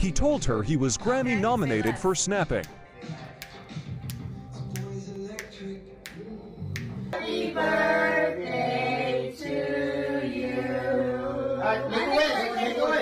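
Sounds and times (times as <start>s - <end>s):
finger snap: 2.6s - 7.2s.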